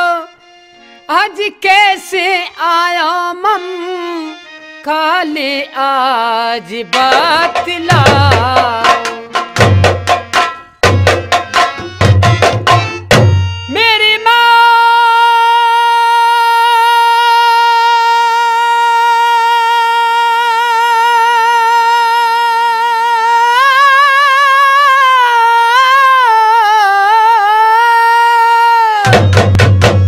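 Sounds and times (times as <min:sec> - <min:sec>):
man singing long high note: 0:13.7 - 0:29.4.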